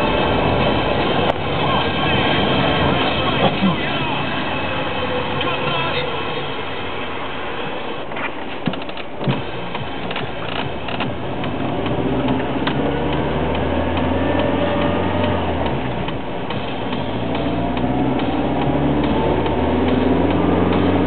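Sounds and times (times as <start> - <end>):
vehicle engine accelerating: 0.0 - 8.0, 9.3 - 21.0
irregular clicks and knocks: 8.6 - 14.5.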